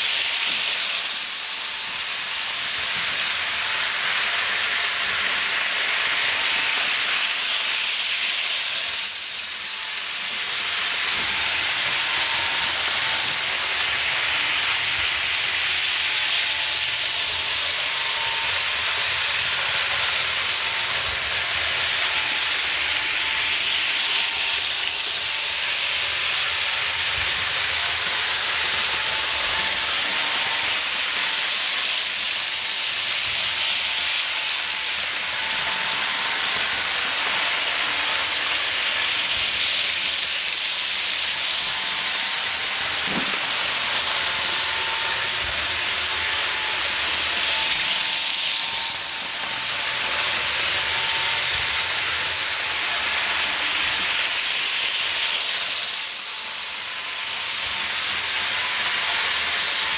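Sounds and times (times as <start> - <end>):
model train wheels hissing on track: 0.0 - 59.9.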